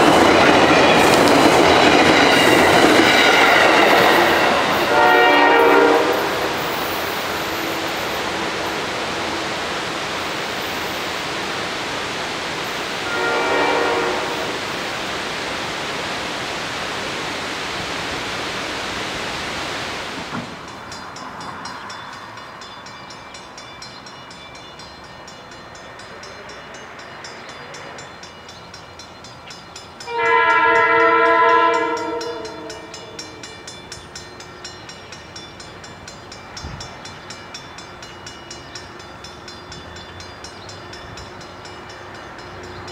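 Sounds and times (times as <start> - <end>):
crossing bell ringing: 0.0 - 11.6, 20.6 - 42.9
diesel train rumbling past: 0.0 - 42.9
locomotive horn blasting: 4.7 - 6.5, 13.0 - 14.6, 30.1 - 33.2.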